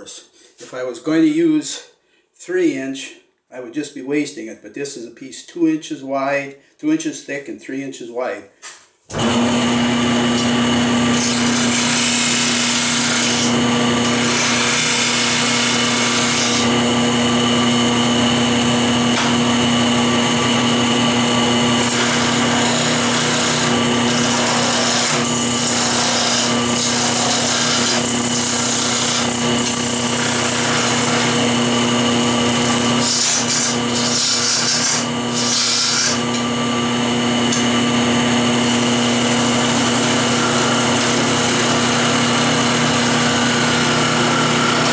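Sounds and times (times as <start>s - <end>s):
turning tool cutting wood: 9.1s - 44.9s
lathe motor hum: 9.2s - 44.9s.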